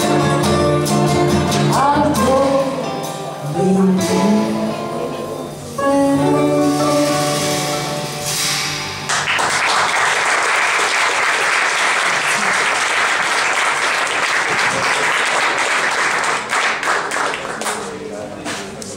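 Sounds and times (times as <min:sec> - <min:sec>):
audience applauding: 0:09.1 - 0:18.1.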